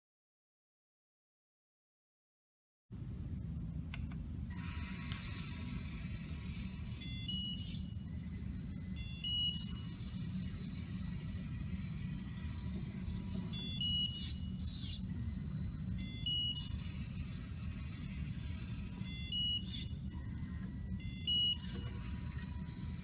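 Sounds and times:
low steady hum: 2.9 - 23.0
electronic buzzer beeps: 6.8 - 8.1, 8.9 - 10.7, 13.4 - 15.1, 16.0 - 18.0, 18.6 - 23.0.

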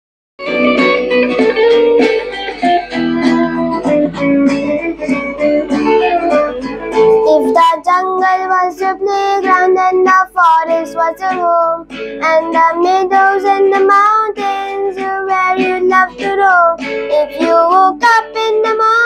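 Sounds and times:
children's song instrumental: 0.4 - 19.0
boy singing: 4.6 - 19.0.

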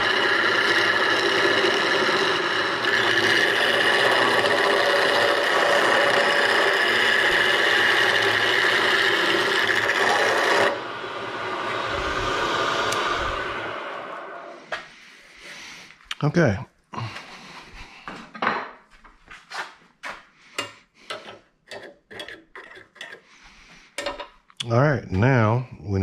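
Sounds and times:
chisel scraping wood on lathe: 0.0 - 10.8, 20.6 - 24.2
wood lathe running: 0.0 - 14.8, 20.6 - 23.2.

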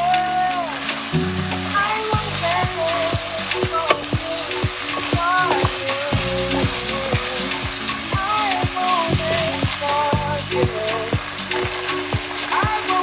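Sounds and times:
music with steady beat: 0.0 - 13.0
wooden spatula stirring: 2.8 - 10.2.

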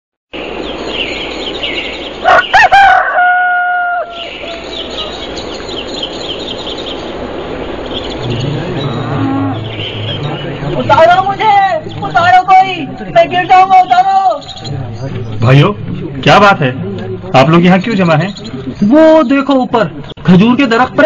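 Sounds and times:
songbirds chirping: 0.3 - 21.0
rooster crowing: 2.2 - 5.1
low hum: 7.1 - 12.2.

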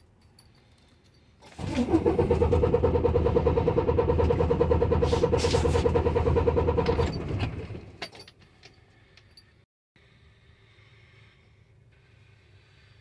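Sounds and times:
diesel engine cranking chugging: 1.4 - 8.4
starter whine: 1.5 - 8.0.

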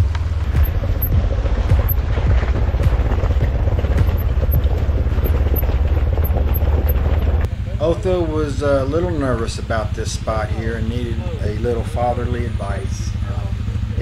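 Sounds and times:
tyres crunching gravel: 0.0 - 7.5
vehicle engine rumbling: 0.0 - 14.0.

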